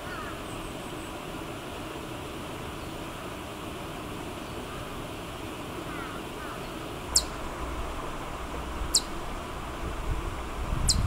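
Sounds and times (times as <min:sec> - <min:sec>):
chipmunk chirping: 0:07.1 - 0:07.5, 0:08.8 - 0:09.3, 0:10.8 - 0:11.0
faint low rumble: 0:07.1 - 0:11.0.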